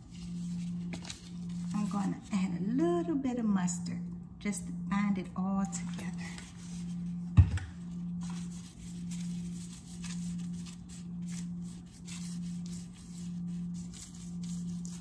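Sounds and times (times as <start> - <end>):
low pulsing hum: 0.0 - 15.0
gloved hand rubbing fish: 8.0 - 15.0.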